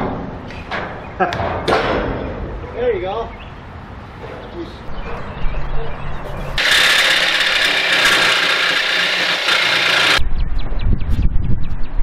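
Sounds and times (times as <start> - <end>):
jigsaw cutting sheet metal: 6.6 - 10.2.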